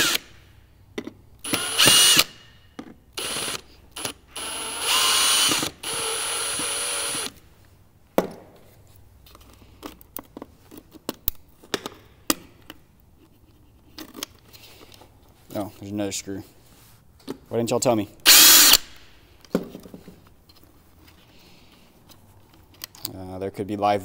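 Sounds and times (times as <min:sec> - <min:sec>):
cordless drill motor whine: 0:01.5 - 0:02.3, 0:03.2 - 0:07.3
light clicks and taps handling parts: 0:08.9 - 0:15.9, 0:19.4 - 0:23.2.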